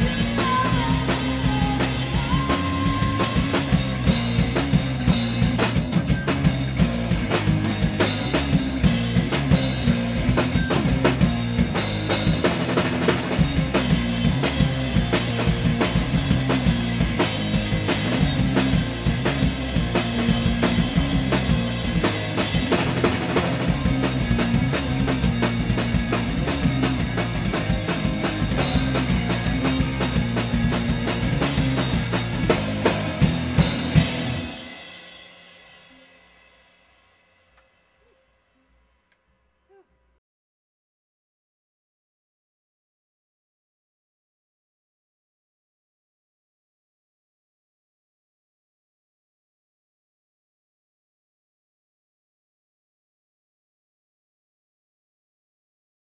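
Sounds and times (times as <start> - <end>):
repeating bass line: 0.0 - 34.7
rock band playing live: 0.0 - 36.0
driving drum beat: 0.0 - 36.6.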